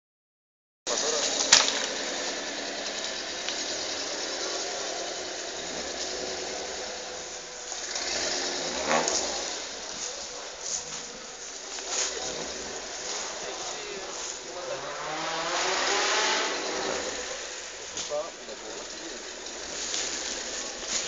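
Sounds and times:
vehicle engine running: 0.9 - 21.0.

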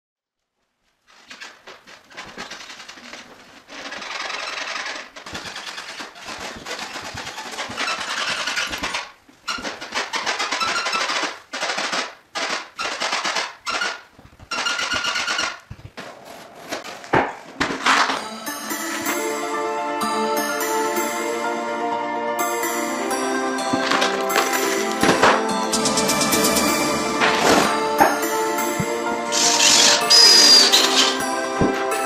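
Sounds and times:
wooden floor creaking under footsteps: 0.9 - 18.2, 27.6 - 32.0.

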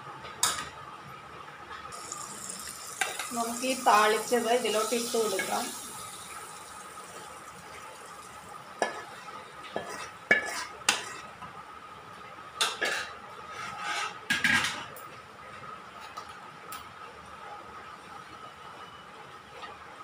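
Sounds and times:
metal ladle scraping metal pan: 13.5 - 14.2.

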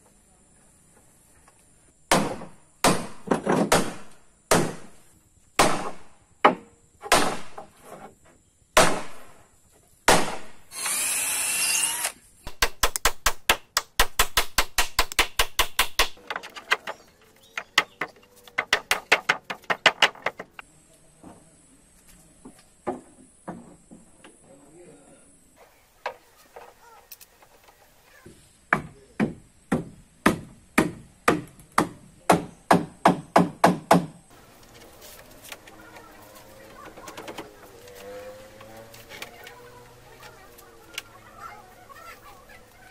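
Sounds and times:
power drill whirring: 10.7 - 12.2
hammer knocks on wood: 28.7 - 34.2.

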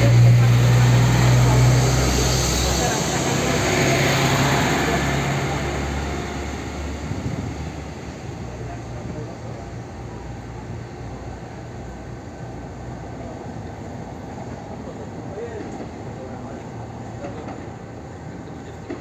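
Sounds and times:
diesel railcar engine hum: 0.0 - 19.0.

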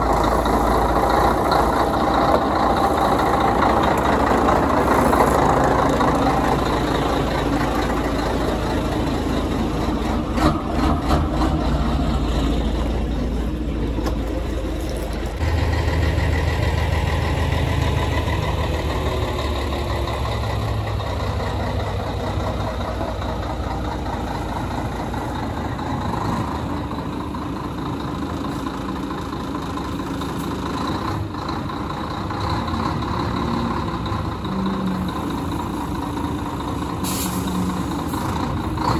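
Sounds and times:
diesel truck engine idling: 0.0 - 38.9.

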